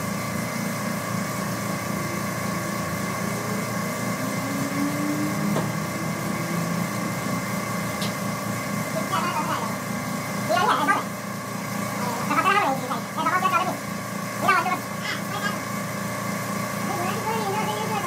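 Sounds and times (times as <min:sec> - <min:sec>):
machine humming: 0:00.0 - 0:18.0.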